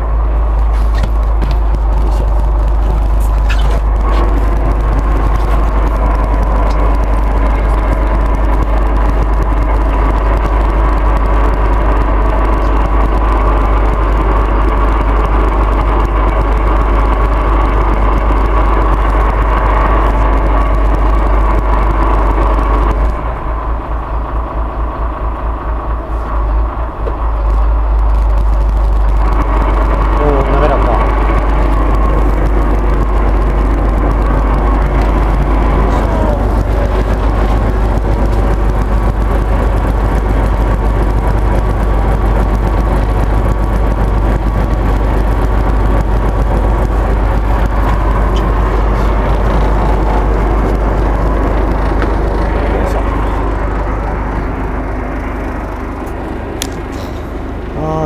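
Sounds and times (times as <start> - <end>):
wind rumble on microphone: 0.0 - 23.6
boat engine running: 0.0 - 58.0.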